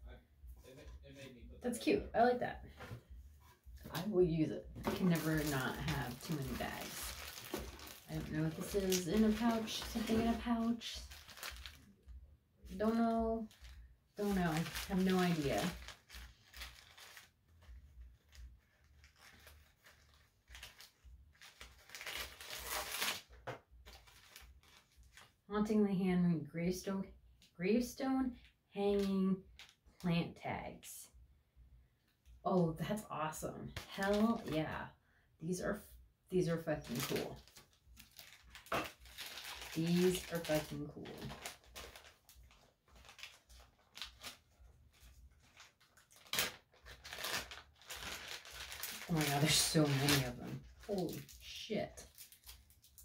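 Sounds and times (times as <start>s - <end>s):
fabric pouch rustling and crinkling: 4.8s - 11.9s, 12.7s - 25.4s, 36.9s - 51.4s.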